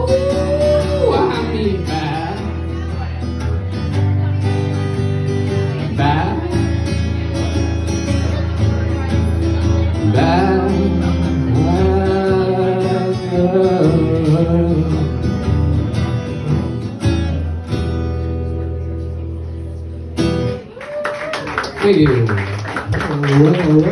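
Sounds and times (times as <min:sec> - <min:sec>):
man singing: 0:00.0 - 0:03.4, 0:05.5 - 0:07.3, 0:09.8 - 0:16.8, 0:23.0 - 0:23.9
strummed acoustic guitar: 0:00.0 - 0:20.7.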